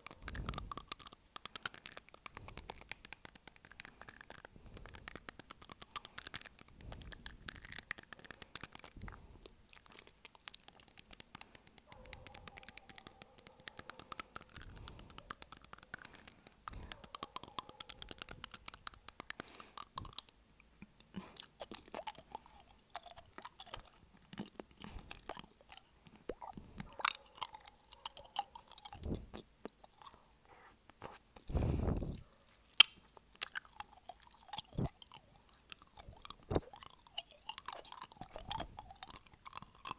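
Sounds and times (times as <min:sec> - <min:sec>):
fingernails tapping on teeth: 0:00.0 - 0:09.2, 0:09.8 - 0:30.2
wet chewing mouth sounds: 0:00.0 - 0:39.9
low rumble on microphone: 0:31.5 - 0:32.2.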